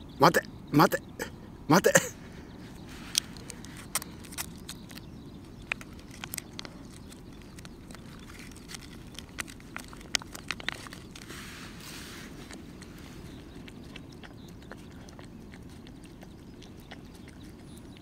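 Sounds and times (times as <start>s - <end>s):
low background noise: 0.0s - 18.0s
foil pouch crinkling: 3.1s - 13.9s.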